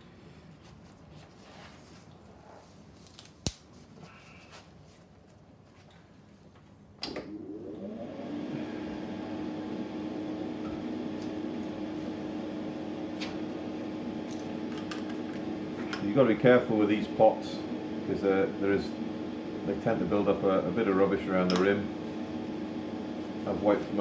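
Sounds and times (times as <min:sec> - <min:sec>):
extractor fan motor hum: 0:07.0 - 0:24.0.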